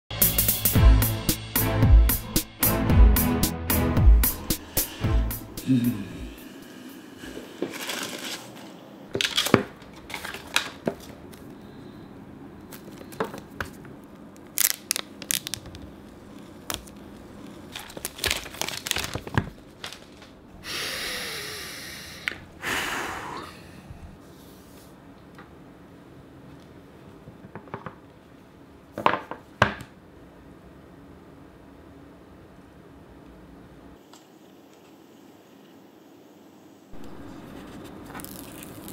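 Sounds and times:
paper tearing: 0:37.0 - 0:38.9.

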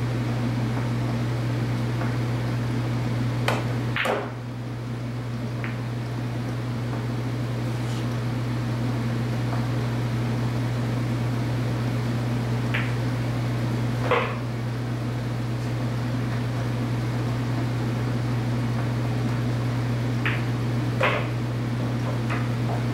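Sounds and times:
low mechanical hum: 0:00.0 - 0:22.9
pool balls clicking: 0:03.4 - 0:04.4, 0:05.4 - 0:07.1, 0:12.6 - 0:13.2, 0:14.0 - 0:14.5, 0:20.2 - 0:22.9.

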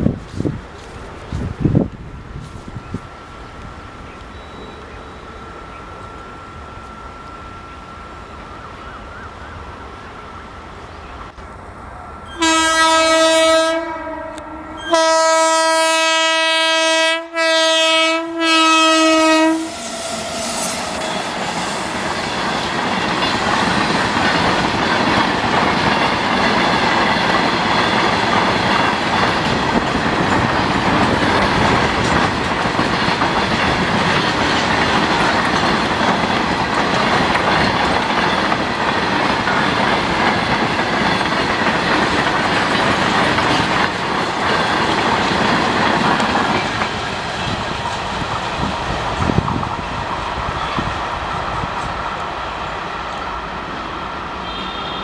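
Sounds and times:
locomotive horn blasts: 0:12.3 - 0:19.8, 0:54.4 - 0:55.0
freight train wagons rumbling: 0:17.8 - 0:55.0.

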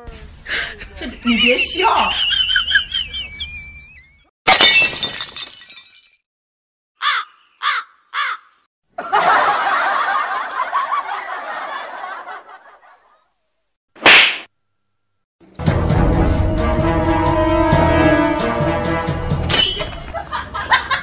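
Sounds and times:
laughter: 0:00.7 - 0:04.3, 0:08.9 - 0:13.4, 0:20.1 - 0:21.0
crow-like caws: 0:07.0 - 0:08.6.

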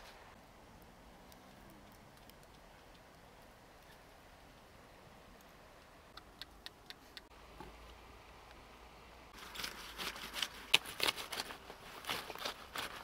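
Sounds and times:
knife cutting through stalks: 0:09.4 - 0:13.0.

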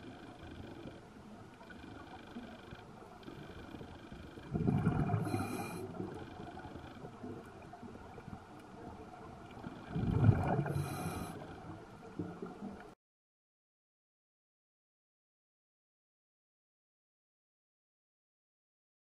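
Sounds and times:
underwater exhaled breath bubbling: 0:04.4 - 0:06.7, 0:09.7 - 0:12.4.

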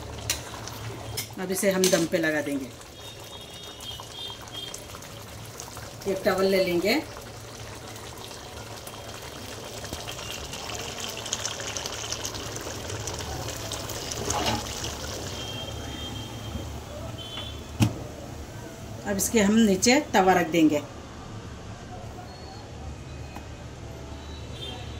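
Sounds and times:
water bubbling in a pot: 0:00.0 - 0:17.6.

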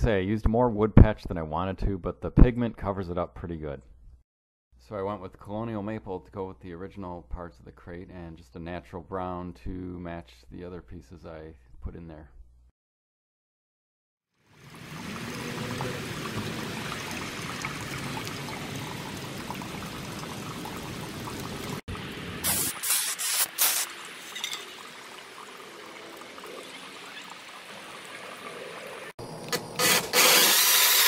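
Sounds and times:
aerosol can spraying: 0:22.4 - 0:23.9.

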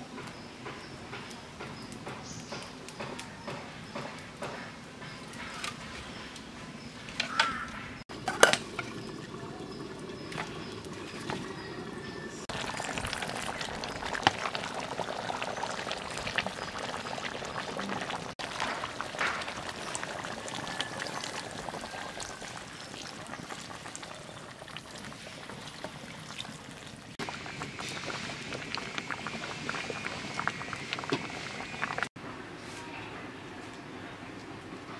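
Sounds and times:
water pouring: 0:08.1 - 0:32.1.

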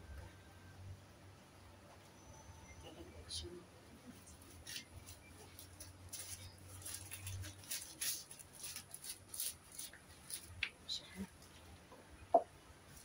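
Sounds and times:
hands rustling and scratching: 0:04.3 - 0:10.7.

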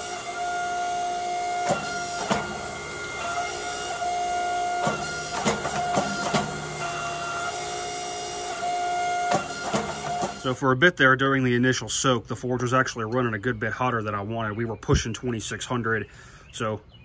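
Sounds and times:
hydraulic pump whining: 0:00.0 - 0:10.7
forging press clanks: 0:01.6 - 0:04.0, 0:04.7 - 0:07.6, 0:09.2 - 0:10.5.

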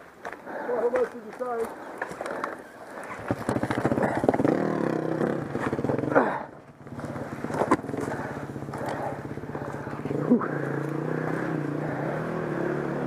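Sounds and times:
dirt bike engine revving: 0:03.2 - 0:13.0.

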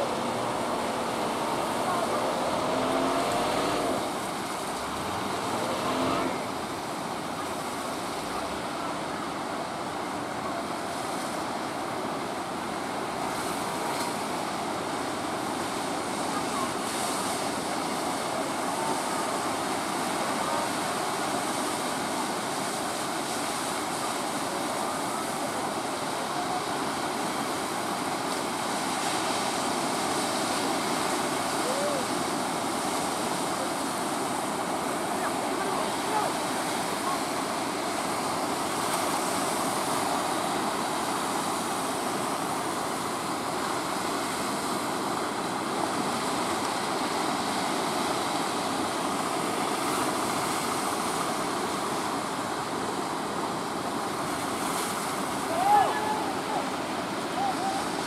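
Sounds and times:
boat engine drone: 0:00.0 - 0:22.1
breaking waves: 0:00.0 - 0:58.0.

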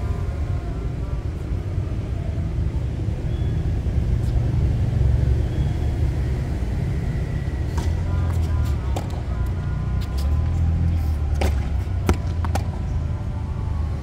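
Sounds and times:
low outdoor rumble: 0:00.0 - 0:14.0.

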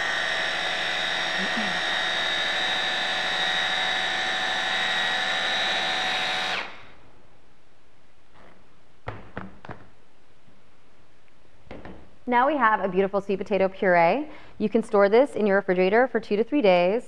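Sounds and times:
immersion blender whirring: 0:00.0 - 0:06.9.

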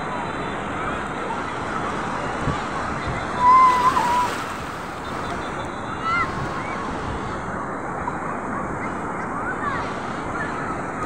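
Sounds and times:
surf breaking on sand: 0:02.0 - 0:05.5.

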